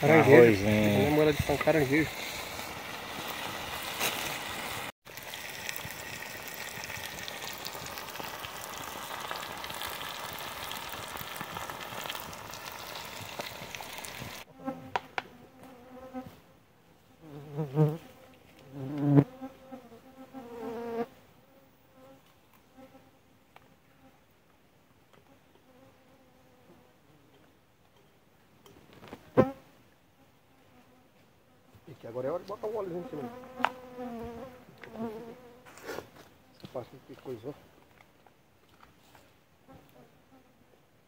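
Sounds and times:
pan sizzling: 0.5s - 14.5s.

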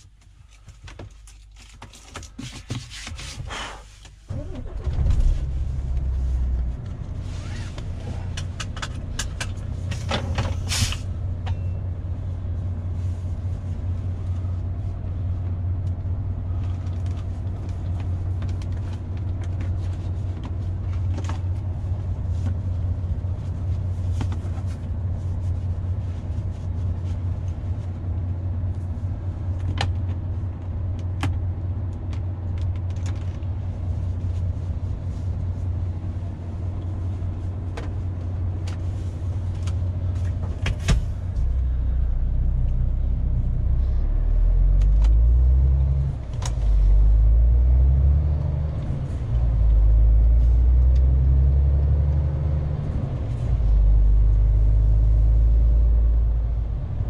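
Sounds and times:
clicks and handling noises: 0.0s - 4.2s
diesel truck engine starting and idling: 3.5s - 57.0s.

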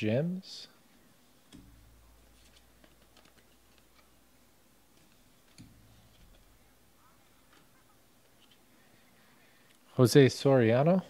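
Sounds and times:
trading cards flipping: 1.5s - 4.2s.

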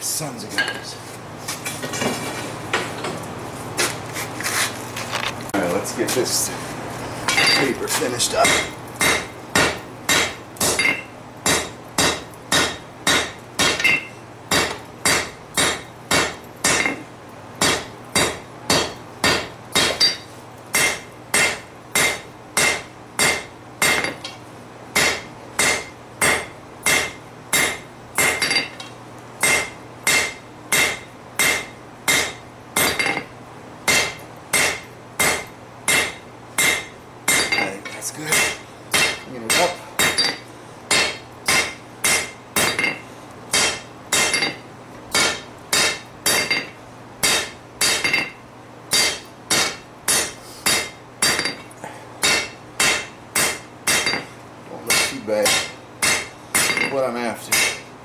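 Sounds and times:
hammer ringing on hot steel: 7.3s - 17.0s, 17.6s - 24.2s, 25.0s - 28.8s, 29.4s - 33.3s, 33.9s - 37.7s, 38.3s - 51.6s, 52.2s - 54.3s, 54.9s - 57.9s.

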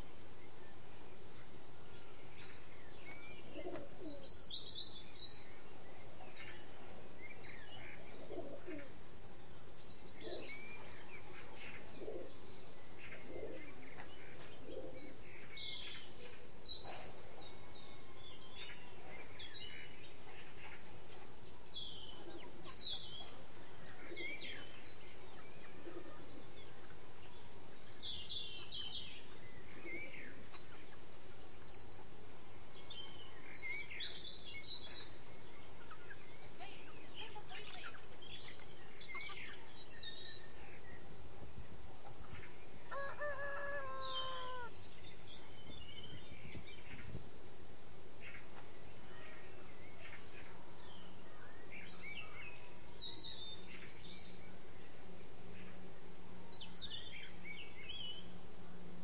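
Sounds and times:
faint background hiss: 0.0s - 59.0s
small birds chirping: 0.0s - 59.0s
low bird calls: 42.2s - 47.2s.

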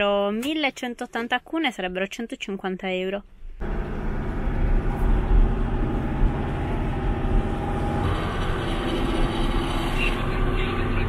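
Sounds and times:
truck engine drone: 3.6s - 11.0s.

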